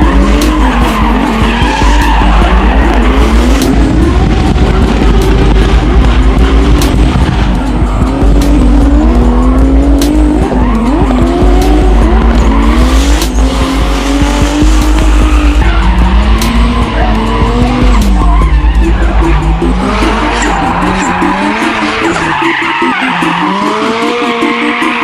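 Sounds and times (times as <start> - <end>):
tyres squealing: 0.0 - 4.0, 14.6 - 25.0
car engine revving: 0.0 - 25.0.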